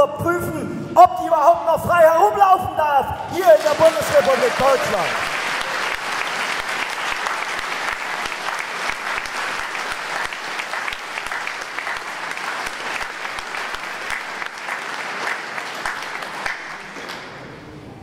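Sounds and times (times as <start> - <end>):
audience applauding: 3.3 - 17.5.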